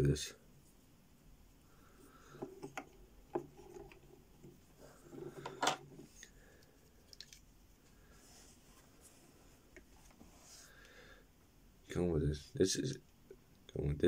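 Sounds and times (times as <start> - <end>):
soft handling noise: 2.0 - 10.9.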